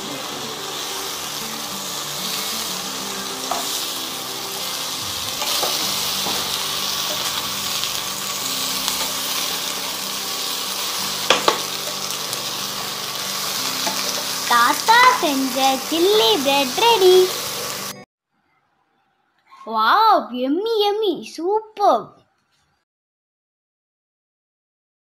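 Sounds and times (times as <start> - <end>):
bread and onions sizzling in pan: 0.0 - 18.0.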